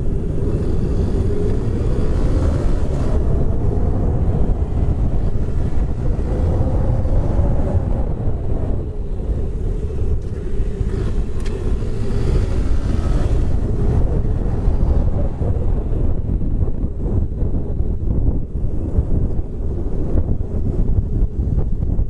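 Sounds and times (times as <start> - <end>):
motorcycle engine running: 0.0 - 22.0
wind buffeting microphone: 0.0 - 22.0.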